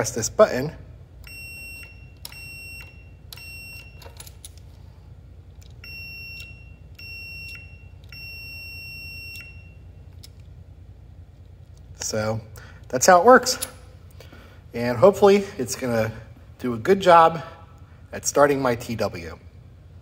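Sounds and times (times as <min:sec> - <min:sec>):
multimeter continuity beeps: 0:01.2 - 0:04.1, 0:05.8 - 0:10.0.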